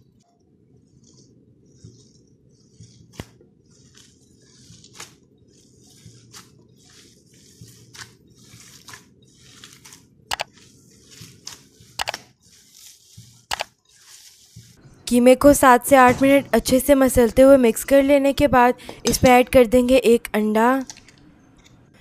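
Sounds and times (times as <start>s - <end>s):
hands squishing minced meat: 5.9s - 10.1s.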